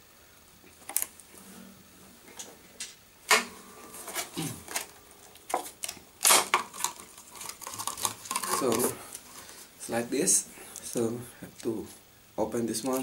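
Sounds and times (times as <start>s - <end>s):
plastic packaging clicks and crackles: 0.8s - 1.2s, 4.7s - 9.5s, 12.8s - 13.0s.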